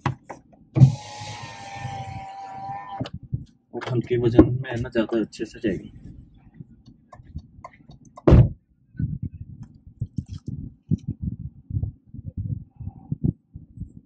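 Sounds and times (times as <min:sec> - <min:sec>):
low thumps and rumbles: 0:03.0 - 0:05.0, 0:05.7 - 0:14.0.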